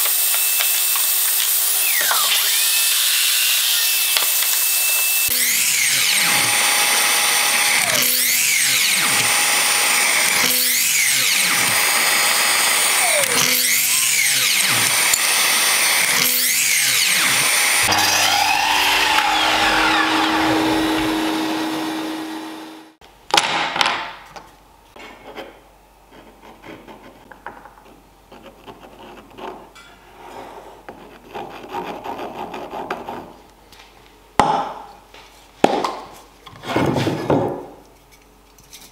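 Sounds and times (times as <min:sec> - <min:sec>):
miter saw cutting wood: 0:00.0 - 0:23.0.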